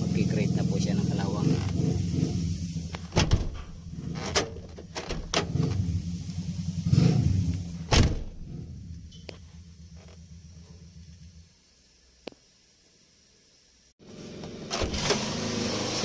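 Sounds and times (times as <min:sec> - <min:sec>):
low engine hum: 0:00.0 - 0:11.5
truck door latch clicks and clunks: 0:03.1 - 0:05.6, 0:07.9 - 0:08.4.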